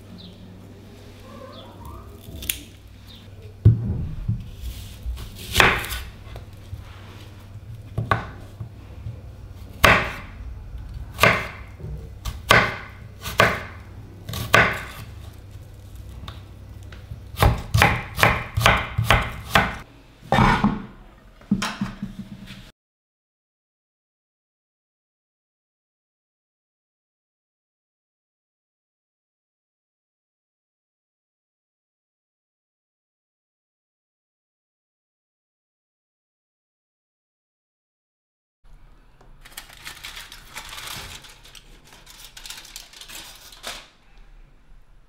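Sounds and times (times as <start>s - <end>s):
low hum: 2.1s - 12.4s
knife chopping on wooden board: 5.5s - 6.1s, 9.8s - 10.3s, 11.2s - 11.6s, 12.2s - 15.0s, 17.4s - 19.8s.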